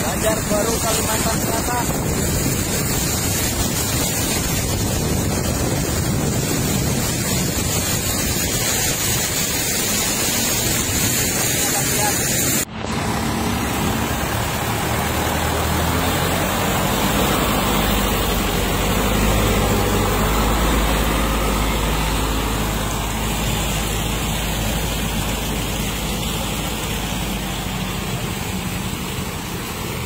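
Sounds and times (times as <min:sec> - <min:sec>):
steady hiss: 0:00.0 - 0:13.0
diesel truck engine droning: 0:00.0 - 0:30.0.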